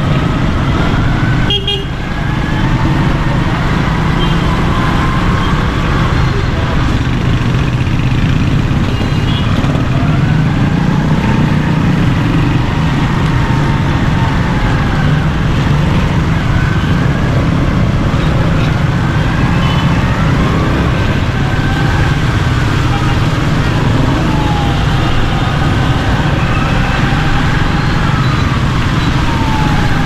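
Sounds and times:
traffic noise: 0.0s - 30.0s.

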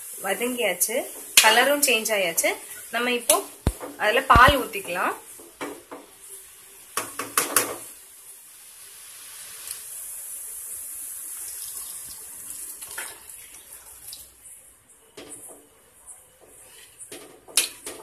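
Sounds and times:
milk pouring into a pan: 11.0s - 14.4s.

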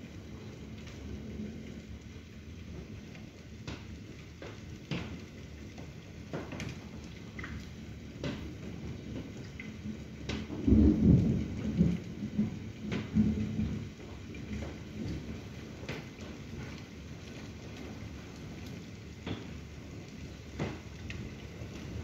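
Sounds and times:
low rumble of thunder: 0.0s - 3.1s, 8.2s - 19.5s
steady rain: 0.0s - 22.0s
raindrops tapping: 0.1s - 22.0s.

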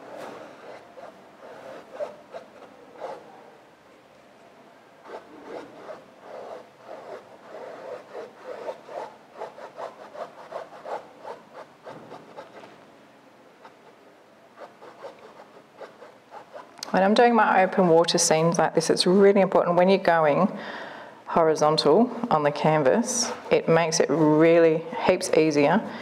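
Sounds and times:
paintbrush strokes on canvas: 0.0s - 3.4s, 5.0s - 12.8s.

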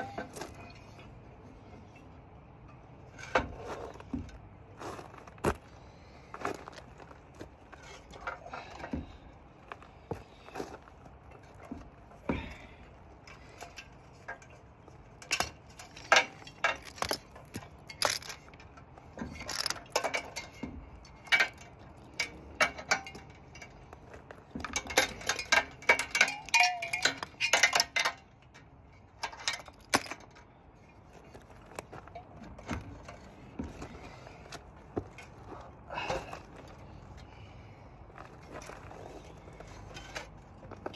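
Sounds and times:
metal clinking and clanking: 0.0s - 5.6s, 6.4s - 40.9s
rattling ringing clinks: 24.7s - 28.4s.

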